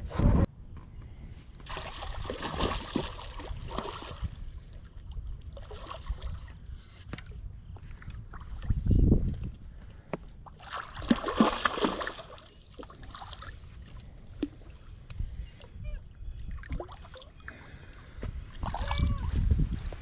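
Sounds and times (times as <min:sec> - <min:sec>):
fish splashing in water: 0:10.6 - 0:13.7.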